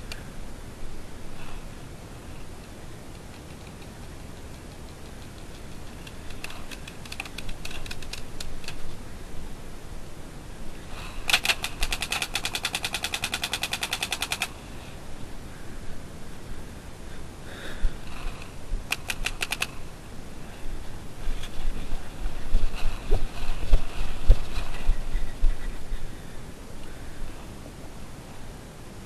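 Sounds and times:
paintball markers firing: 11.3s - 14.5s, 18.9s - 19.8s.

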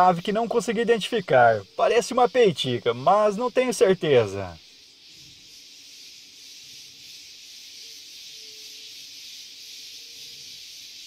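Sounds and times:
insect chorus drone: 0.0s - 11.0s.

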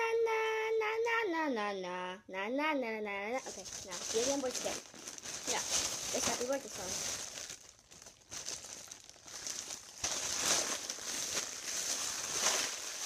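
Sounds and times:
foil balloon crinkling: 3.3s - 13.0s.

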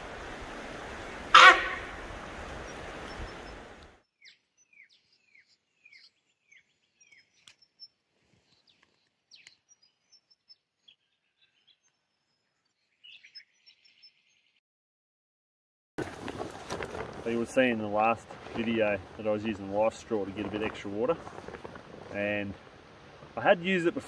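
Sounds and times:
birds chirping: 1.0s - 14.6s.

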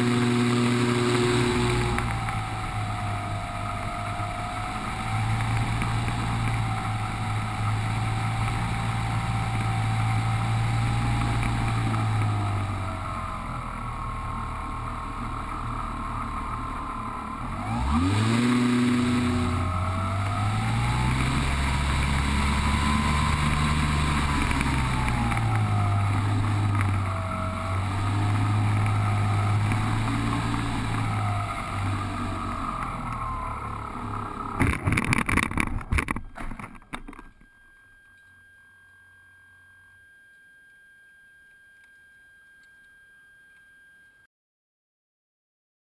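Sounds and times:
electric motor and propeller whine: 0.0s - 38.4s.

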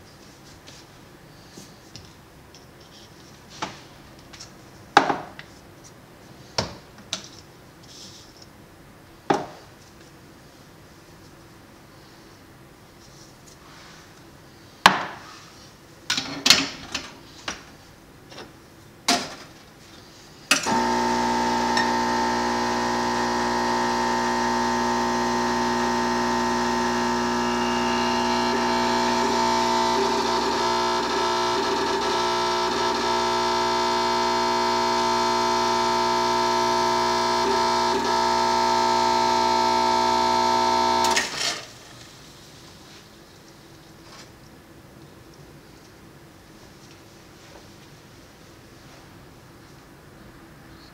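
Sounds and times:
espresso machine pump humming: 20.7s - 41.3s.

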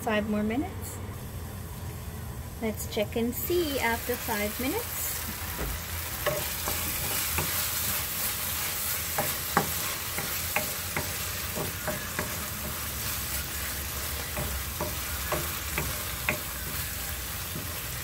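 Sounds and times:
food sizzling: 1.1s - 18.0s
wooden spoon scraping wok: 5.2s - 18.0s
spoon clacking against pan: 9.1s - 13.0s, 14.2s - 18.0s.

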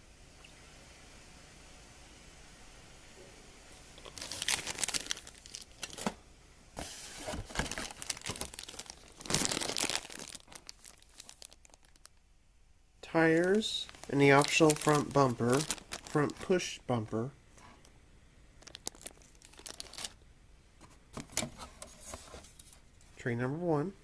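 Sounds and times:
plastic bags crinkling: 4.0s - 6.2s, 7.2s - 12.2s, 13.1s - 17.1s, 18.6s - 20.2s.

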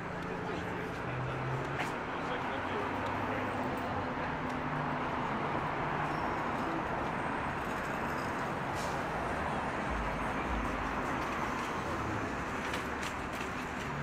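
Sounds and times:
crowd chatter: 0.0s - 5.5s
traffic: 0.0s - 14.0s.

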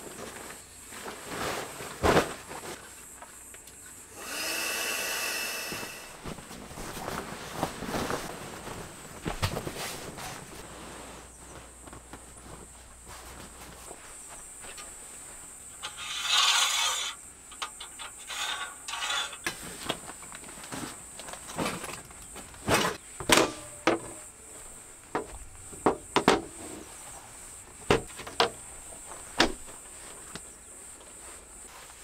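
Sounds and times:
fabric bag rustling scrape: 5.5s - 11.7s
metal frame clicks and knocks: 27.9s - 28.6s.

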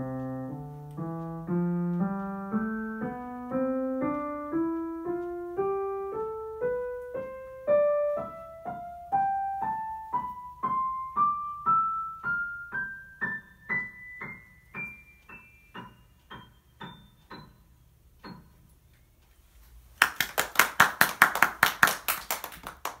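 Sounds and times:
piano playing single notes: 0.0s - 19.0s
hands clapping in applause: 20.0s - 23.0s.

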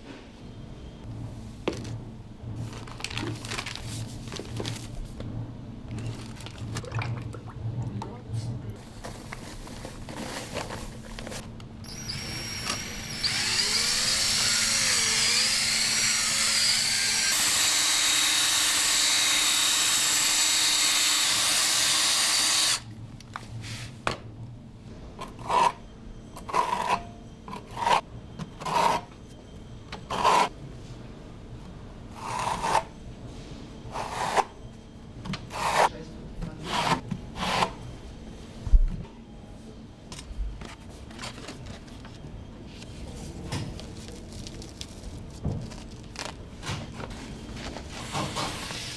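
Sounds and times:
electric drill mixing in bucket: 11.8s - 22.8s
trowel scraping mortar: 30.1s - 30.5s, 35.5s - 35.9s.

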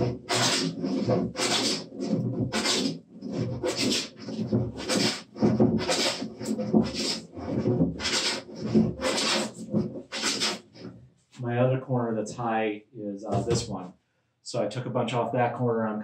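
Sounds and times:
hand plane shaving wood: 0.0s - 10.9s.

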